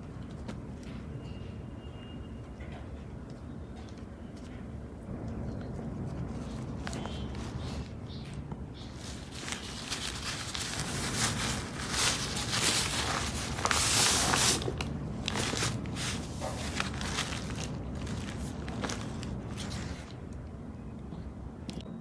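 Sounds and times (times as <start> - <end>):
cloth dust bag rustling: 8.8 - 20.2
tissue paper crinkling: 8.8 - 20.2.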